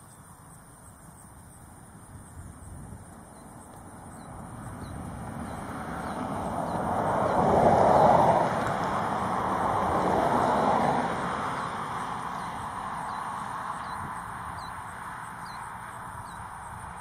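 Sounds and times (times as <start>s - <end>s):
vehicle passing: 3.8s - 17.0s.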